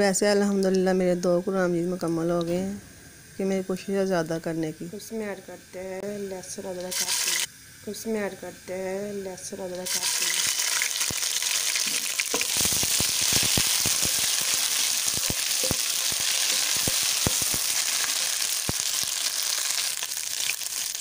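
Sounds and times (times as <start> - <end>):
paste sizzling in oil: 6.5 - 7.5, 9.5 - 21.0.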